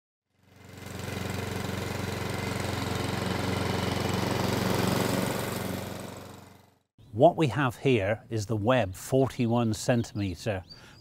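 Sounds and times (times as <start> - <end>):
lawn mower engine running: 0.3 - 6.8.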